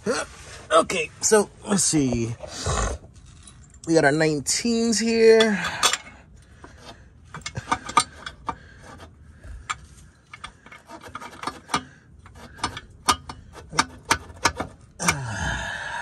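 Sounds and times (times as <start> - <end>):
metal bolts and tools clicking: 5.0 - 15.2.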